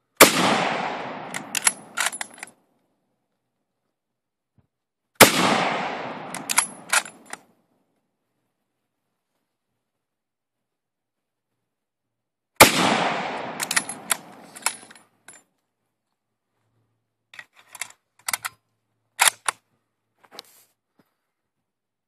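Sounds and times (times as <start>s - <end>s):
rifle shot with echo: 0.2s - 2.1s, 5.2s - 7.2s, 12.6s - 14.6s
rifle bolt clicks and clacks: 1.2s - 2.6s, 6.2s - 7.5s, 13.4s - 15.5s, 17.3s - 18.6s, 19.2s - 19.6s.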